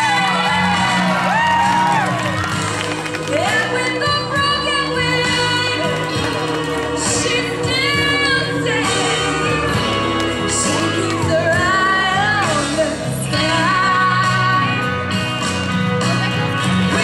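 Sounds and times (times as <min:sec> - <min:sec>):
musical accompaniment: 0:00.0 - 0:17.0
woman singing into microphone: 0:03.2 - 0:14.9.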